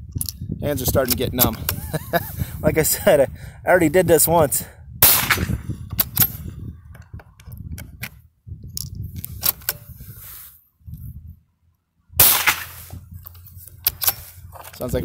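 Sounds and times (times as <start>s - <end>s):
rifle bolt clicking and rattling: 1.0s - 1.8s, 5.3s - 9.9s, 13.2s - 14.9s
loud sharp burst: 12.2s - 12.9s.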